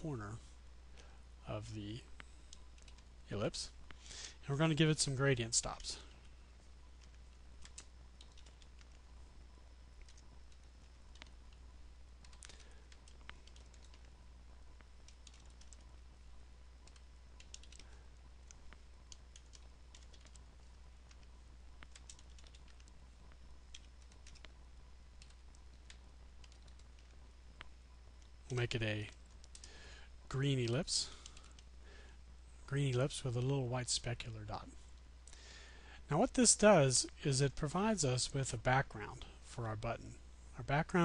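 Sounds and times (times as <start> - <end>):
low electrical hum: 0.0 - 41.0
keyboard typing: 2.5 - 3.1, 7.0 - 9.0, 10.0 - 11.6, 12.2 - 14.2, 15.0 - 15.9, 16.8 - 23.0, 23.7 - 24.6, 25.2 - 29.8, 30.6 - 31.7.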